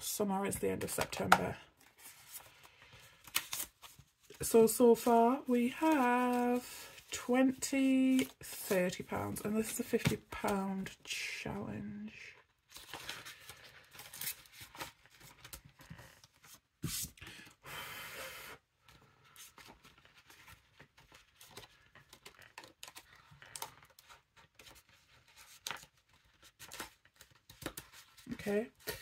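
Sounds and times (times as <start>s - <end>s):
paper banknotes rustling: 1.0s - 10.6s
plastic binder pockets crinkling: 19.6s - 29.0s.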